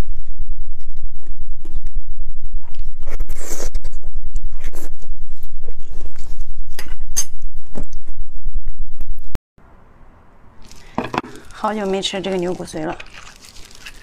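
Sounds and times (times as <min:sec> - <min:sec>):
steady low hum: 0:00.0 - 0:13.0
gloved hands rustling: 0:10.6 - 0:14.0.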